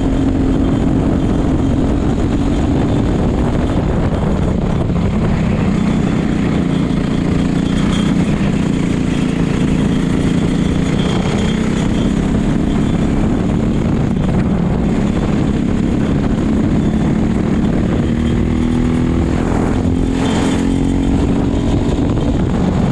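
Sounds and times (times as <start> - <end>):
go-kart engine running hard: 0.0 - 22.9.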